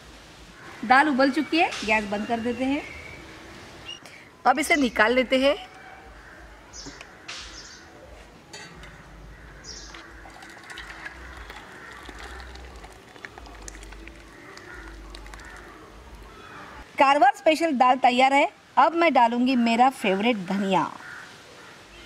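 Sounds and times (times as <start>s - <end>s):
birds chirping: 0.6s - 16.9s
steel pot clinking against bowl: 10.2s - 12.8s.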